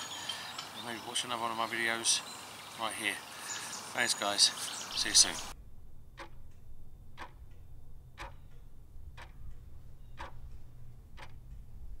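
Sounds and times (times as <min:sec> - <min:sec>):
low steady hum: 0:04.9 - 0:12.0
clock ticking: 0:06.0 - 0:11.8.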